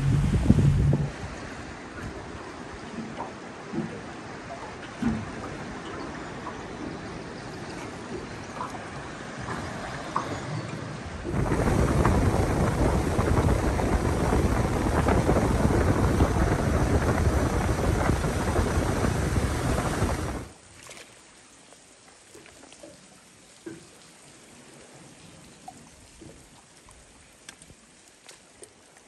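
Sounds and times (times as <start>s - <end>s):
wind buffeting microphone: 0.0s - 3.2s, 10.6s - 20.5s
water noise from boat: 0.0s - 29.0s.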